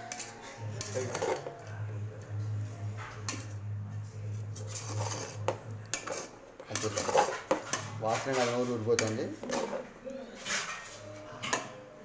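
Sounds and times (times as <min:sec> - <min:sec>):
metal spoon scraping pot: 0:00.0 - 0:01.7, 0:04.3 - 0:11.6.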